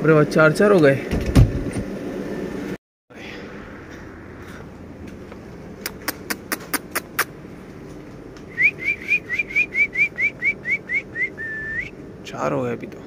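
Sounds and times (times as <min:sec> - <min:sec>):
sharp clicks: 0:05.8 - 0:07.3
person whistling rising chirps: 0:08.5 - 0:12.0.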